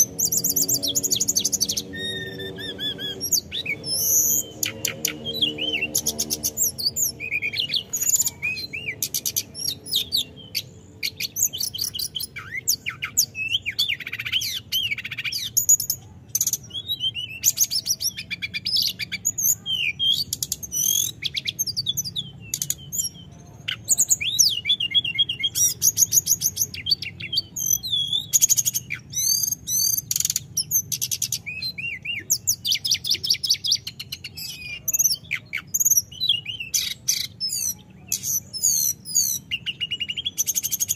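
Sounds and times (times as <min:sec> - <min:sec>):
bird singing whistles and trills: 0:00.0 - 0:40.9.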